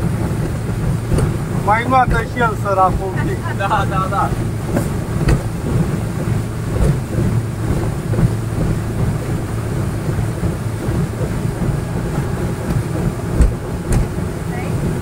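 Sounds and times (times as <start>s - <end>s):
boat engine running: 0.0s - 15.0s
wind on microphone: 0.0s - 15.0s
sharp thump: 4.7s - 5.5s, 13.4s - 14.2s.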